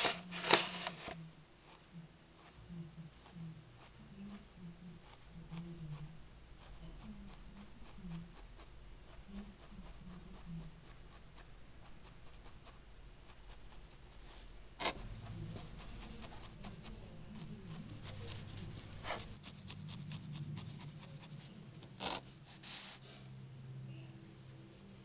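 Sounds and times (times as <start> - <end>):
scratchy rubbing of wool: 3.2 - 23.2.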